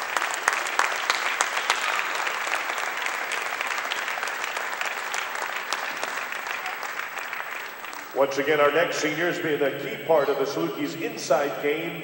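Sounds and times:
crowd applauding: 0.0s - 8.6s.

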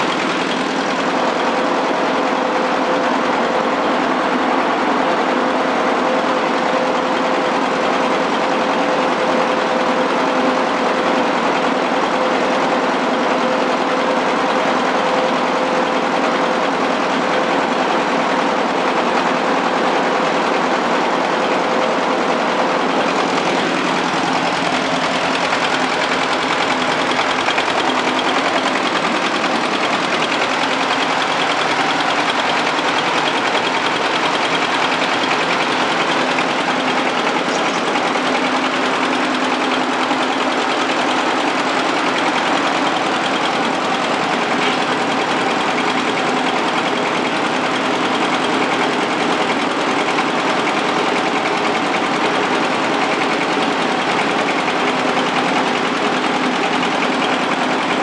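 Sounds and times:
blower fan rushing air: 0.0s - 58.0s
diesel engine running: 0.0s - 58.0s.

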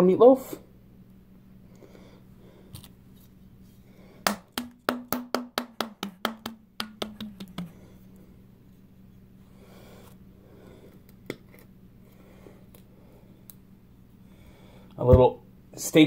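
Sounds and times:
palm slapping bottle bottom: 4.3s - 7.9s.

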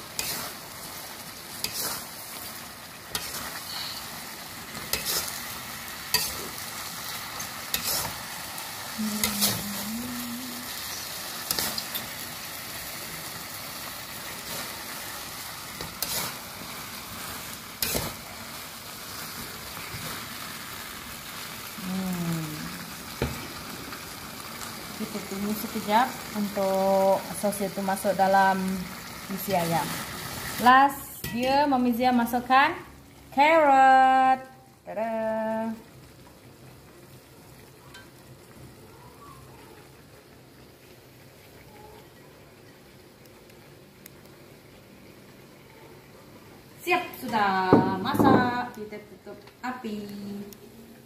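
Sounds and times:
food sizzling in a wok: 0.0s - 51.0s
metal spatula scraping a pan: 0.1s - 0.6s, 1.6s - 2.2s, 3.1s - 4.1s, 4.8s - 5.4s, 7.4s - 8.2s, 15.8s - 16.4s.

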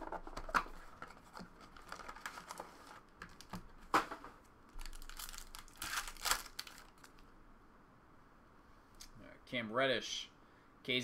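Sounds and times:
sharp wrapper crackle: 4.7s - 7.2s
foil wrapper crinkling and tearing: 4.8s - 7.2s.

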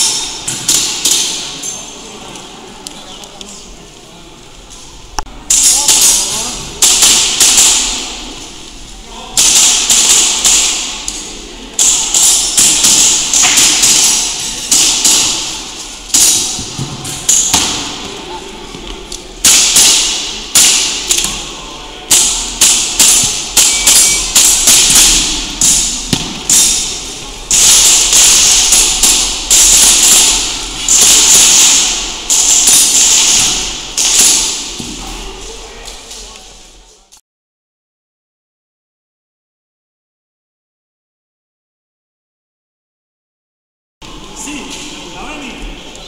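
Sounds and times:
airsoft pistol shots: 22.1s - 34.7s.

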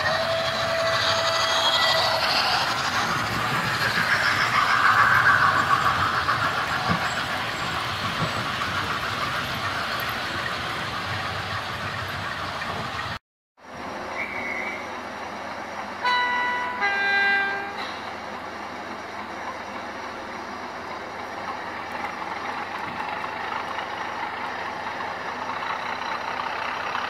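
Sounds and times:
model steam locomotive sounds: 0.0s - 13.2s.

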